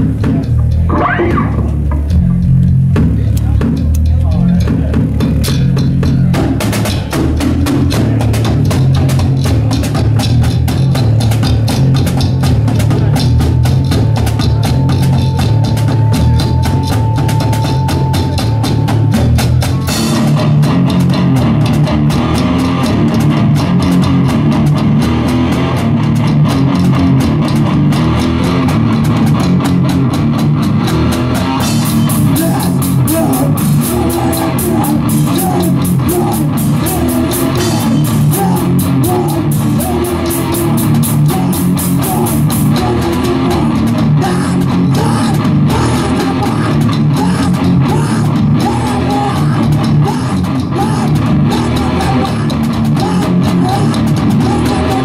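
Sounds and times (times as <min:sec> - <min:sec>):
distorted guitars and bass: 0:00.0 - 0:55.0
fast dense drumming: 0:00.0 - 0:55.0.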